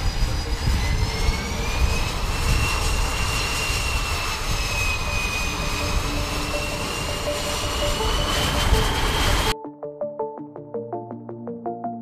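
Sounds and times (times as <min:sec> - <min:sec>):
helicopter rotor and engine noise: 0:00.0 - 0:09.6
high turbine whine: 0:00.0 - 0:09.6.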